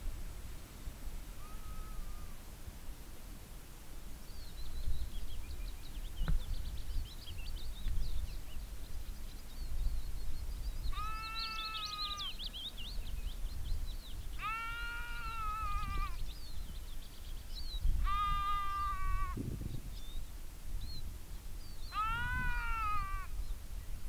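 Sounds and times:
small birds twittering: 4.2 - 24.0
low wind rumble: 4.3 - 24.0
sheep bleating: 10.9 - 12.2, 14.4 - 16.2, 18.0 - 19.4, 21.9 - 23.3.

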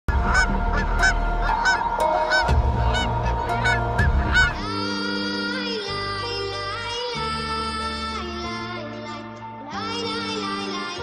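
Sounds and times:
geese honking: 0.1 - 4.8
low rumble: 0.1 - 5.1
music with held tones: 0.1 - 11.0.

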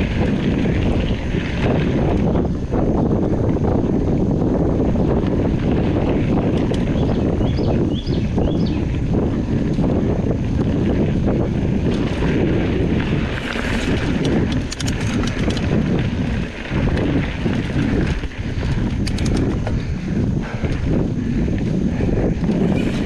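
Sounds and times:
bike rattling: 0.0 - 23.0
tyre rumble: 0.0 - 23.0
wind buffeting microphone: 0.0 - 23.0
sharp clicks: 14.2 - 15.7, 18.8 - 19.7.

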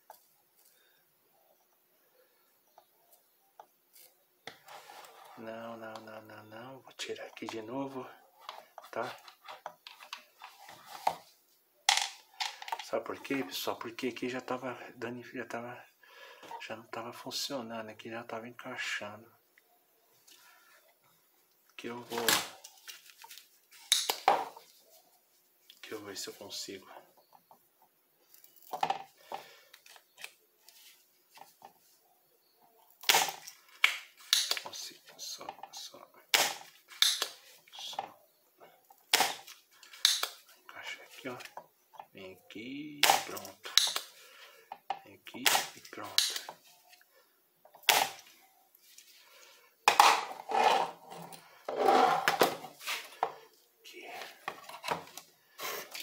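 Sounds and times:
desoldering pump snap: 40.0 - 40.3, 46.2 - 46.5.

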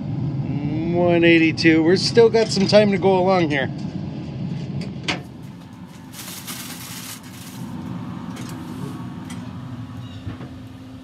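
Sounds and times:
aluminium foil crinkling: 5.4 - 8.6.

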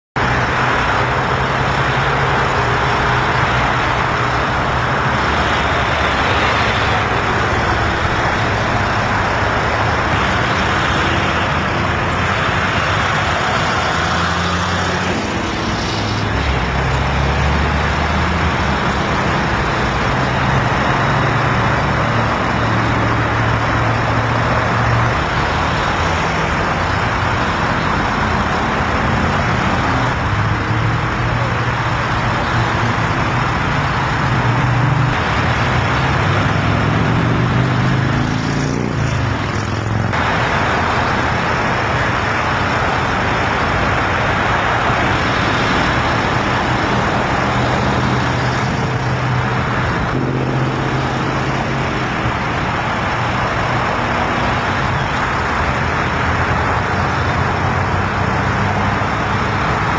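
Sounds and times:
freeway traffic rush: 0.1 - 59.9.

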